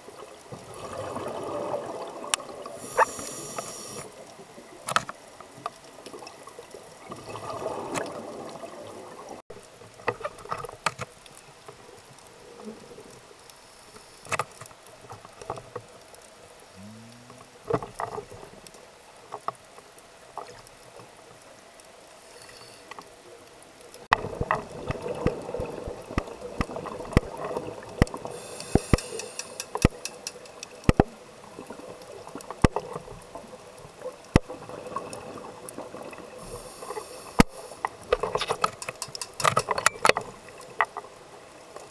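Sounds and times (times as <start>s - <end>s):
bubbling water rush: 0.6s - 4.2s, 6.4s - 9.4s, 24.1s - 36.7s
sharp underwater clicks: 26.1s - 31.2s, 36.8s - 41.1s.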